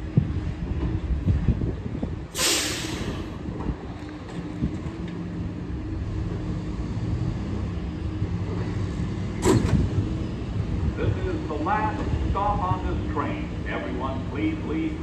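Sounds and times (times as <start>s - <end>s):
train equipment low hum: 0.0s - 15.0s
train doors sliding open: 2.3s - 5.2s, 8.5s - 10.6s.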